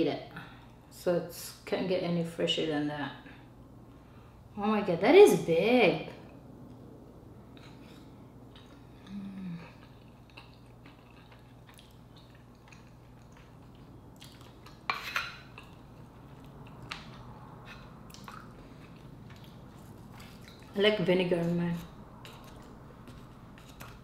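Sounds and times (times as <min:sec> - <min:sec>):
chewing and mouth clicks: 0:07.5 - 0:20.8, 0:22.2 - 0:24.0
person humming: 0:09.0 - 0:09.8.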